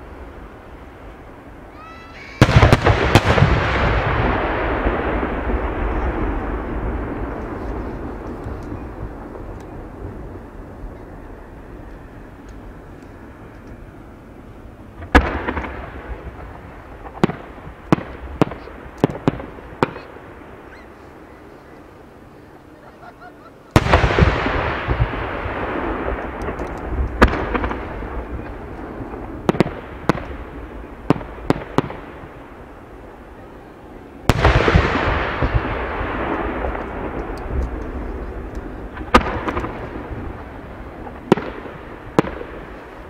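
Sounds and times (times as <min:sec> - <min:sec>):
firework shells bursting: 0:23.7 - 0:30.4.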